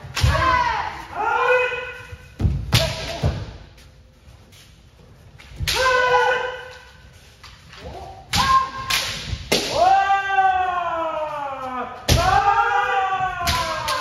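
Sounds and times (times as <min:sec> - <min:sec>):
bamboo swords striking armour: 0:08.3 - 0:09.9.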